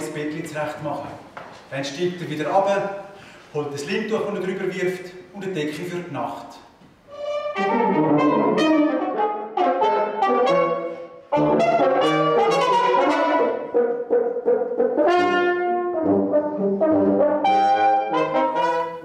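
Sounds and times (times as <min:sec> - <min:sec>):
brass quintet playing chords: 0:07.1 - 0:19.0.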